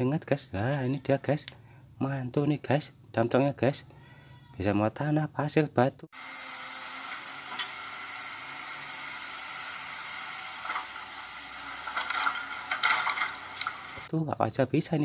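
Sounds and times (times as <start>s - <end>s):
hissing machine noise: 6.1s - 14.1s.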